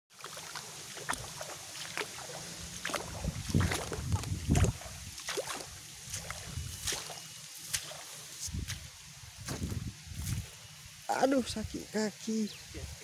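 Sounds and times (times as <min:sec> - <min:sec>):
footsteps through wet mud: 0:00.1 - 0:11.6
heavy low thuds: 0:08.5 - 0:10.5.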